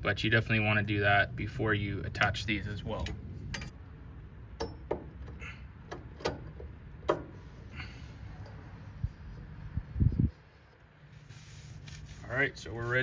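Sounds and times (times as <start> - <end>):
metal tubing clicks and taps: 4.6 - 7.4.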